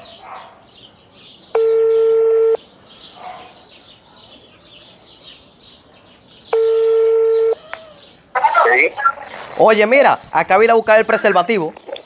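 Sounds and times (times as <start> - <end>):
birds chirping faintly: 0.0 - 12.0
phone ringback beep: 1.6 - 2.6, 6.6 - 7.6.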